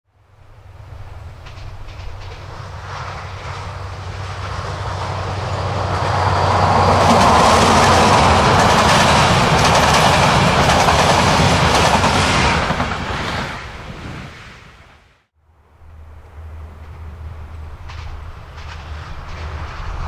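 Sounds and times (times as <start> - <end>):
diesel locomotive engine humming: 0.2 - 13.2, 15.5 - 20.0
train wheels clattering over rail joints: 1.4 - 13.4, 17.6 - 20.0.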